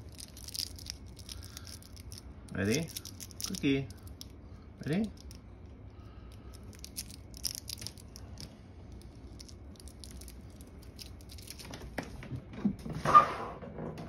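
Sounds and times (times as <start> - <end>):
plastic wrapper crinkling: 0.0 - 5.4, 6.4 - 11.8.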